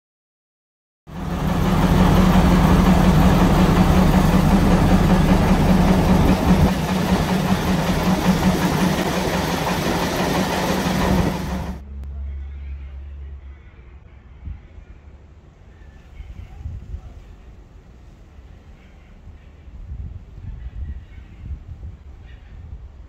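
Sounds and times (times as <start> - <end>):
diesel engine humming: 1.1 - 14.0.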